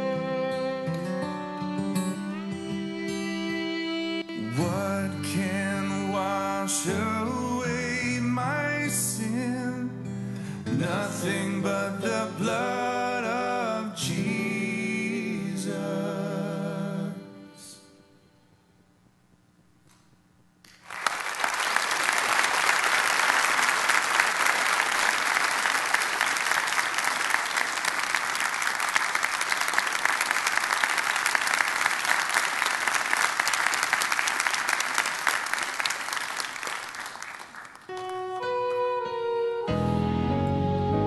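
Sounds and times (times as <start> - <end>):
congregation applauding: 20.7 - 38.6.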